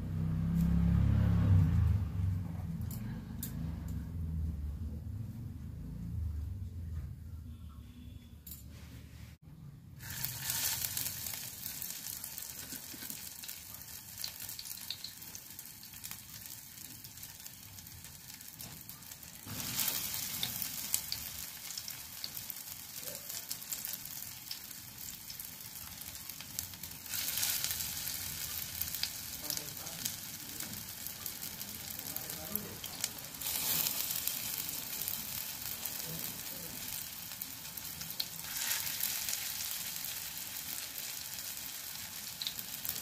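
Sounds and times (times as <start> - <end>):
pakoras sizzling in hot oil: 9.9 - 43.0.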